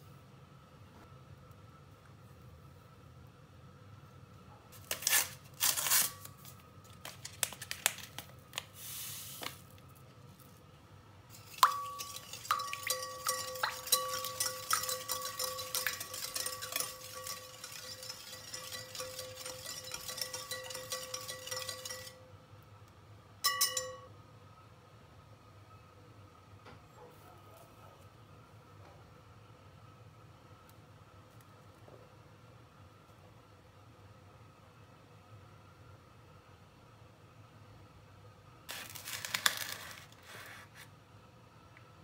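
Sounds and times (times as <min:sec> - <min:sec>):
whisk clattering against bowl: 0:11.4 - 0:22.2
whisk clicking against glass bowl: 0:11.4 - 0:22.2.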